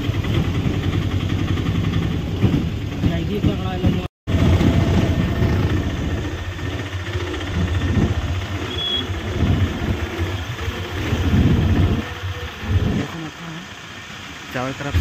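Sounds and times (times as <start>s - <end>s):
auto-rickshaw engine rumble: 0.0s - 15.0s.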